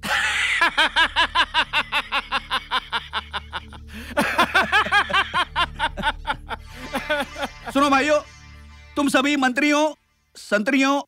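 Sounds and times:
man laughing gloatingly: 0:00.0 - 0:08.0
low steady drone: 0:00.0 - 0:10.4.

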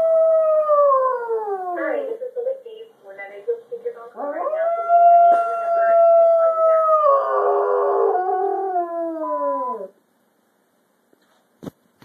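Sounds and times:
dog howling: 0:00.0 - 0:02.1, 0:04.2 - 0:10.0.

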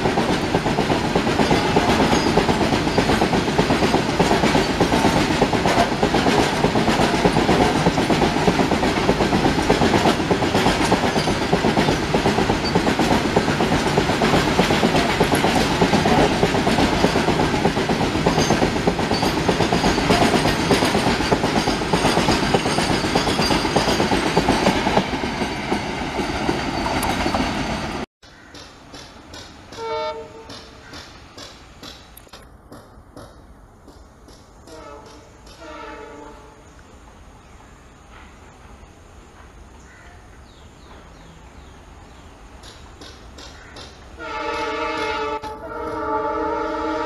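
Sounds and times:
freight wagons rumbling on rails: 0:00.0 - 0:35.7
distant locomotive horn: 0:29.8 - 0:30.8, 0:34.6 - 0:36.7, 0:44.2 - 0:47.0.

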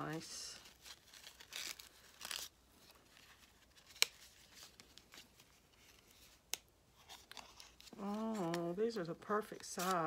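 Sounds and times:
paper rustling: 0:00.0 - 0:08.7, 0:09.5 - 0:10.0.

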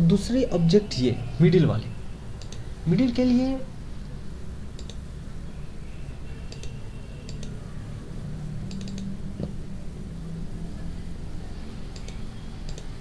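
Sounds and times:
low steady hum: 0:00.0 - 0:13.0
computer mouse clicks: 0:02.4 - 0:02.7, 0:04.0 - 0:05.0, 0:06.5 - 0:07.6, 0:08.6 - 0:09.6, 0:11.9 - 0:13.0.

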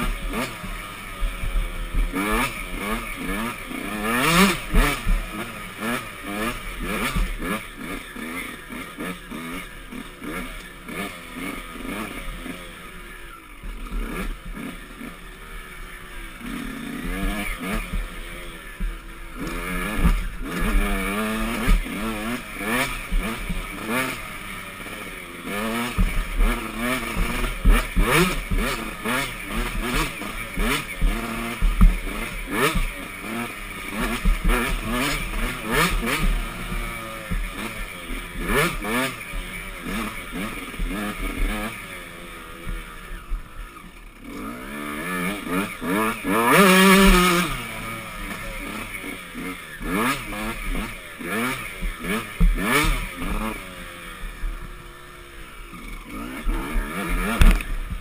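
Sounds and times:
dirt bike engine revving: 0:00.0 - 0:58.0
knocks over rough ground: 0:34.1 - 0:37.6.

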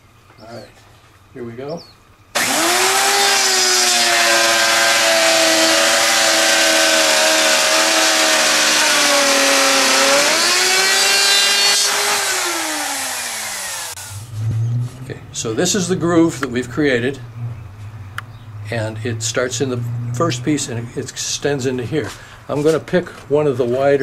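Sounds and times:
electric router cutting wood: 0:02.4 - 0:14.1
router motor winding down: 0:02.4 - 0:14.2.

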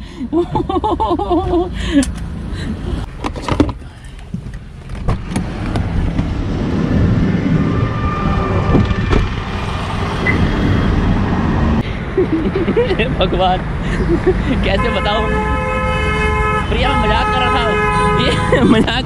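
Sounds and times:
road traffic noise: 0:00.0 - 0:19.0.

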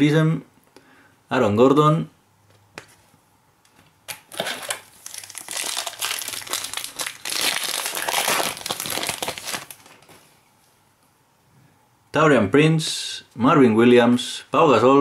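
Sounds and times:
foil wrapper crinkling: 0:04.3 - 0:10.1.

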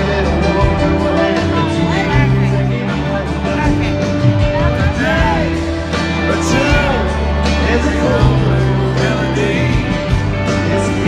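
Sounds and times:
bass: 0:00.0 - 0:11.0
live country band playing: 0:00.0 - 0:11.0
person singing: 0:04.6 - 0:11.0.

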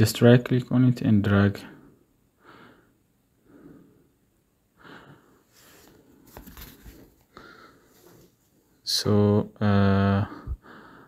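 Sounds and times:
soft breathing: 0:01.6 - 0:08.7, 0:10.2 - 0:11.0.

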